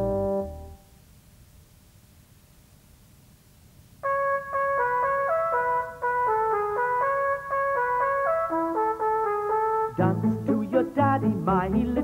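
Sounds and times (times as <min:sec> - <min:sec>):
brass melody: 0:00.0 - 0:00.8, 0:04.0 - 0:11.9.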